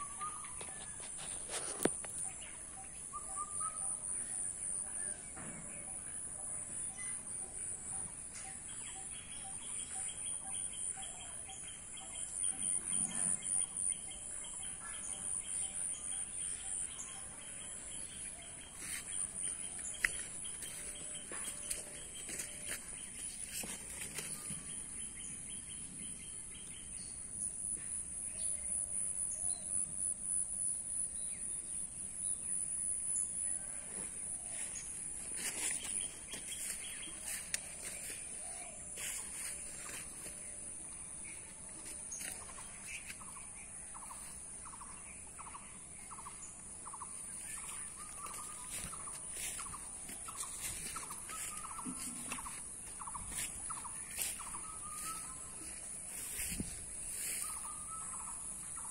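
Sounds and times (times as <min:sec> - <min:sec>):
bird calls: 0:00.0 - 0:06.0, 0:41.9 - 0:58.9.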